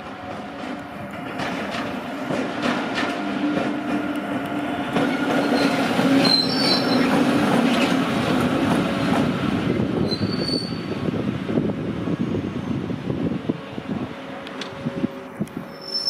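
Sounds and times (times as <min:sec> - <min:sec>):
wheels squealing on rails: 0:05.0 - 0:08.1, 0:10.0 - 0:11.1, 0:15.6 - 0:16.0.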